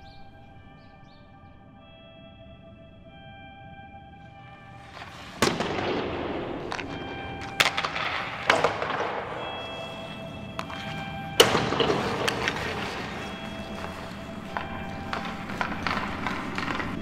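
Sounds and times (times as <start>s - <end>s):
sharp cracks or bangs: 4.7s - 17.0s.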